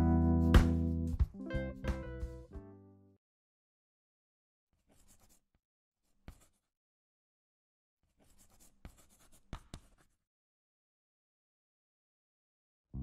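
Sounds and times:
chalk tapping: 0:04.8 - 0:05.4, 0:06.2 - 0:06.6, 0:08.2 - 0:10.2
chalk scratching on a chalkboard: 0:04.8 - 0:06.7, 0:08.1 - 0:10.2.

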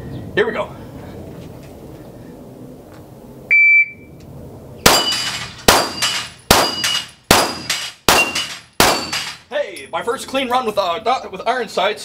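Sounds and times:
shot timer beep: 0:03.5 - 0:04.1
pistol shots: 0:04.8 - 0:09.4
ringing steel plate: 0:04.9 - 0:09.4.

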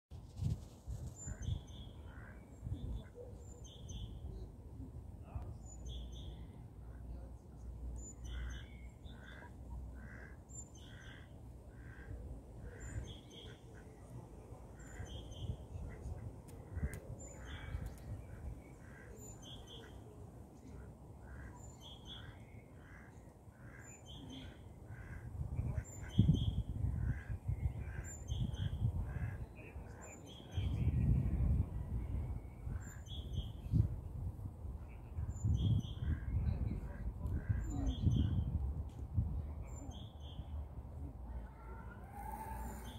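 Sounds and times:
wind gusting on microphone: 0:00.1 - 0:01.8, 0:25.0 - 0:29.5, 0:30.5 - 0:39.7
ducks quacking softly: 0:01.3 - 0:03.3, 0:08.3 - 0:30.0, 0:36.0 - 0:38.4.

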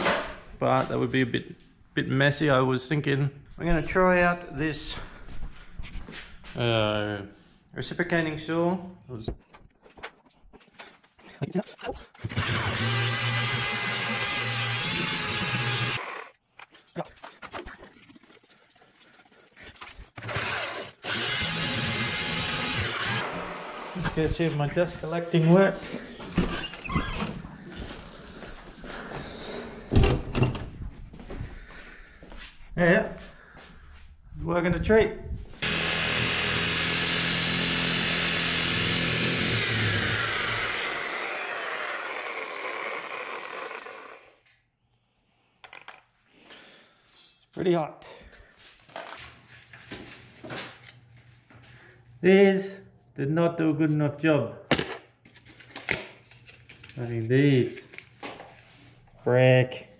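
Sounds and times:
power tool motor whining: 0:12.2 - 0:16.3, 0:20.2 - 0:24.1, 0:35.6 - 0:44.4
reciprocating saw cutting brick: 0:12.2 - 0:16.4, 0:20.1 - 0:24.0, 0:35.6 - 0:44.4.

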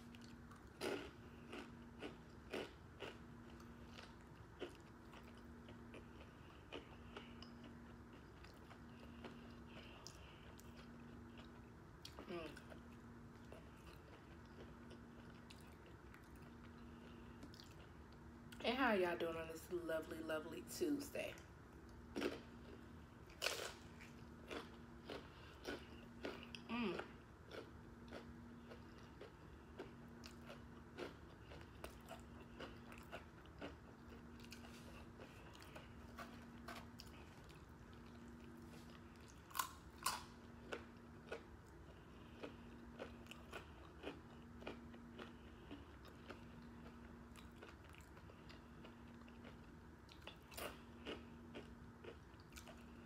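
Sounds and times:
quiet chewing: 0:00.0 - 0:18.6, 0:21.7 - 0:53.0
chips crunching: 0:00.1 - 0:06.1, 0:27.5 - 0:41.5.

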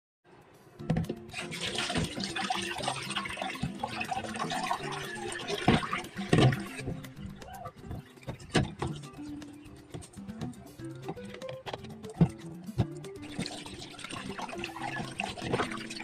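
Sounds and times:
tap water running into sink: 0:01.3 - 0:07.1, 0:13.2 - 0:16.0.

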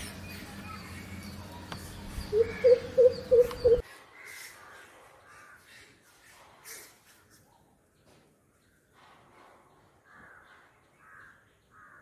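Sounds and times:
bird deep hooting call: 0:02.3 - 0:03.8.

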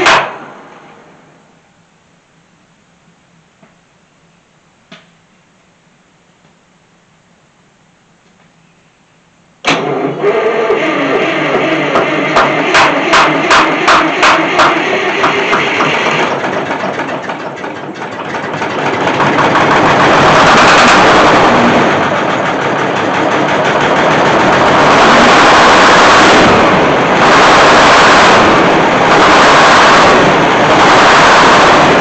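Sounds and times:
starter motor cranking engine: 0:09.7 - 0:32.0
diesel engine running loud: 0:09.8 - 0:32.0.

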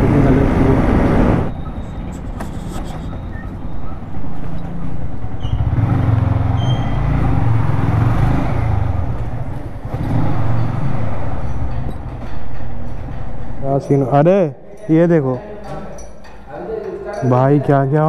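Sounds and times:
motorcycle engine running at low speed: 0:04.3 - 0:11.8.

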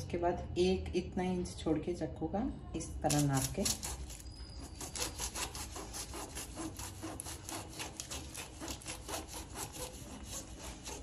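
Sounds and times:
knife sawing through fruit roll: 0:03.1 - 0:11.0.

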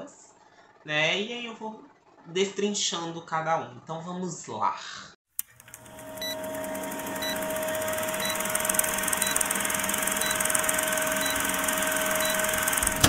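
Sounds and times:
film projector whir and rattle: 0:05.4 - 0:13.0
hum: 0:05.6 - 0:13.0.

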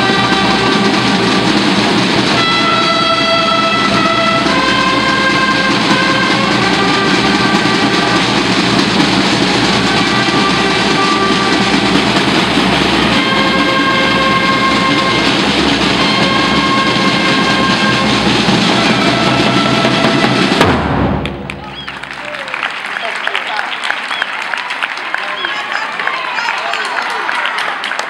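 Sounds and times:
held brass notes: 0:00.0 - 0:22.4
continuous drumming: 0:00.0 - 0:24.3.

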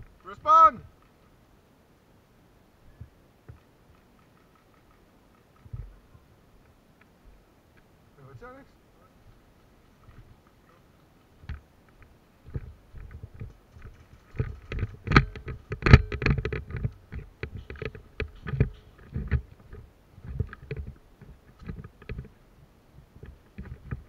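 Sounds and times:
knocks and scuffs on dirt: 0:11.4 - 0:22.4.

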